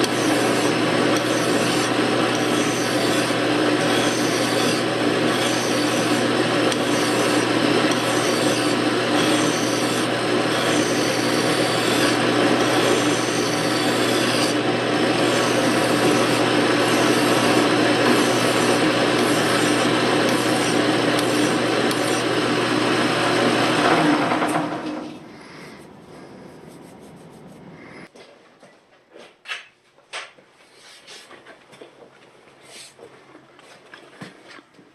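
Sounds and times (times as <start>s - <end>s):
file rasping on metal spindle: 0.0s - 22.4s
lathe humming: 0.0s - 27.7s.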